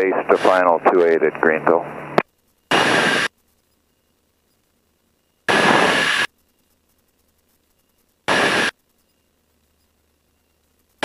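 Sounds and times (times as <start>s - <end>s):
radio static bursts: 0.0s - 3.4s, 5.4s - 6.3s, 7.3s - 8.9s.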